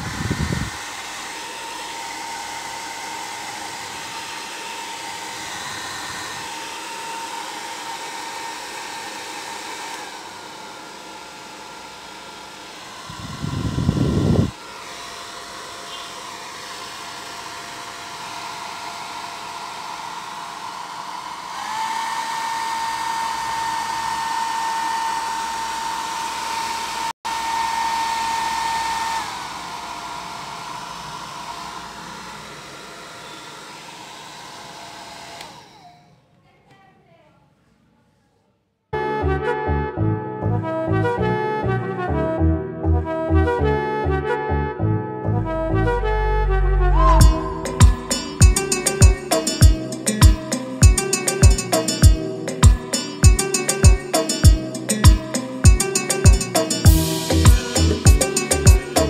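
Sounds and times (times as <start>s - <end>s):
hair dryer whirring: 0.0s - 36.2s, 47.2s - 59.0s
loud low rush: 12.9s - 14.6s, 45.5s - 49.3s.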